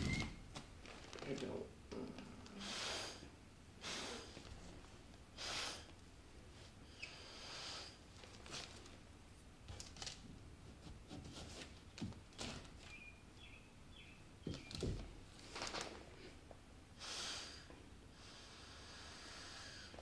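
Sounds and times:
breath blown through straw: 2.6 - 4.4.

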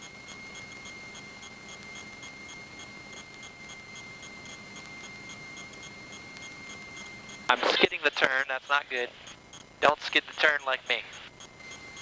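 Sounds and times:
faint high whine: 0.0 - 12.0
soft regular ticking: 0.2 - 7.5, 8.2 - 12.0
intercom audio hiss: 7.5 - 11.4.

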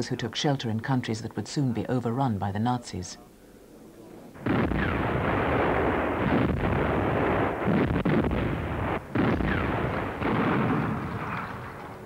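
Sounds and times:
artillery blast: 4.4 - 12.0
continuous gunfire: 4.4 - 12.0.

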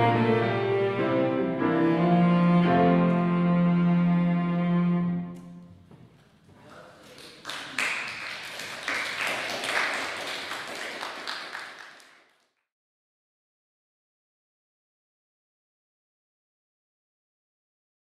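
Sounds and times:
small audience clapping: 6.5 - 12.7.

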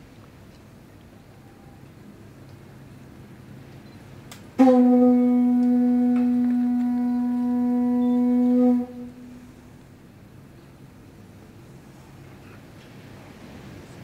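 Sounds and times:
conch shell trumpet note: 4.6 - 9.8.

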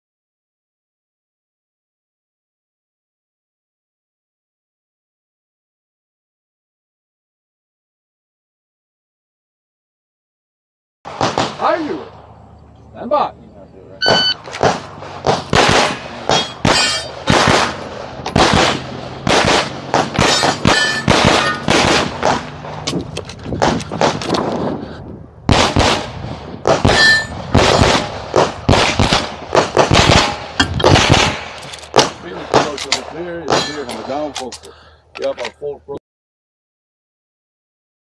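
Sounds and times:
pistol shots: 11.1 - 12.1, 14.0 - 23.0, 23.6 - 24.5, 25.5 - 34.5
shot timer beep: 14.0 - 14.4.

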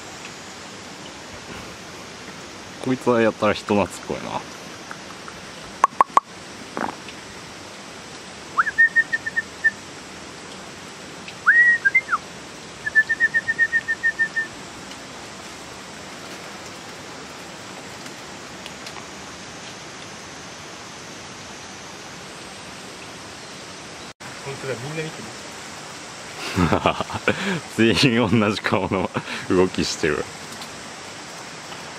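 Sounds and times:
stream rushing: 0.0 - 31.9
high whistled calls: 8.5 - 9.8, 11.4 - 12.2, 12.8 - 14.6.

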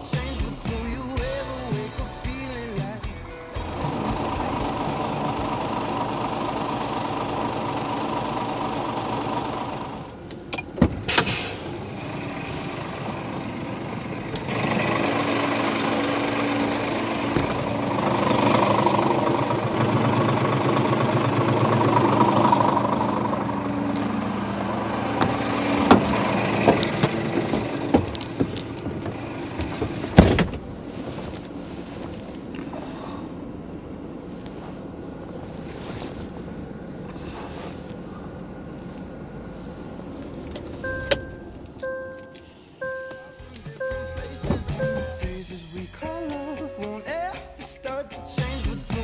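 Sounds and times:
truck diesel engine idling: 0.0 - 49.0
sharp clicks and knocks: 25.2 - 30.6.

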